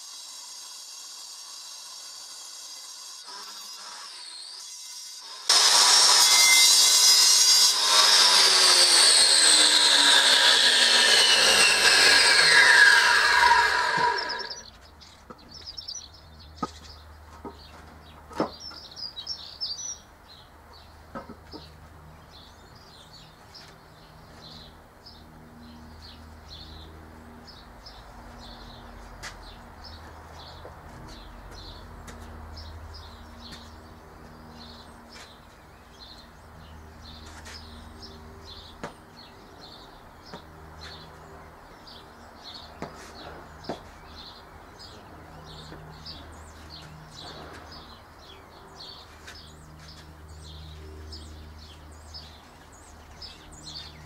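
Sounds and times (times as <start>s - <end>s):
angle grinder cutting stone: 0.0s - 14.7s
birds chirping: 9.4s - 54.0s.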